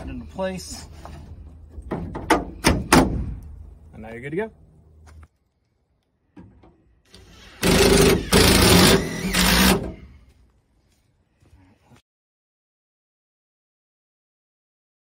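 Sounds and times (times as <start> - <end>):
power drill driving screw: 7.1 - 10.1.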